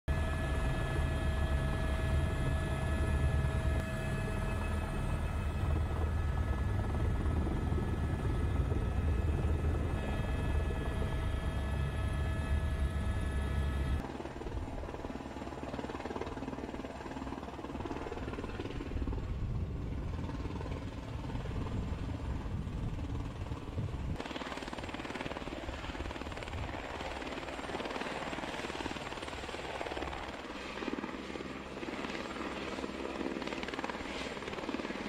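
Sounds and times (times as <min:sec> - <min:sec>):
high turbine whine: 0:00.1 - 0:15.0
helicopter rotor drone: 0:00.1 - 0:35.0.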